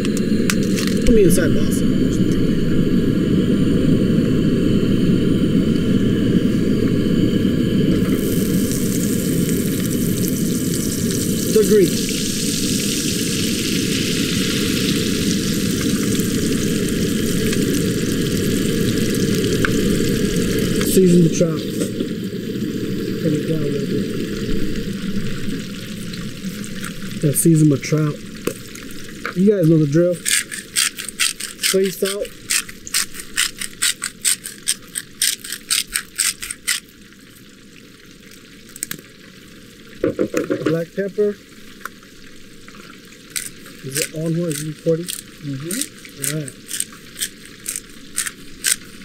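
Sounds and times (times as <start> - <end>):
low rumble: 0.0 - 29.6
butter and oil sizzling in pan: 8.0 - 49.0
salt grinder grinding: 29.3 - 36.9, 43.3 - 49.0.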